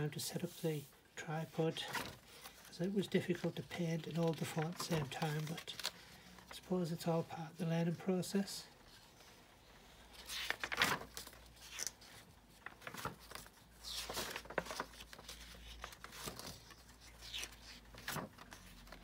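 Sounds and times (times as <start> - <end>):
paper pages turning: 1.8 - 6.7, 10.1 - 19.0.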